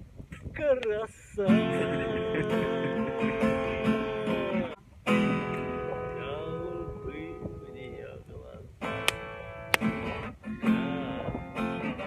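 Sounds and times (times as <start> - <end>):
acoustic guitar strumming: 1.5 - 7.7, 8.8 - 12.0.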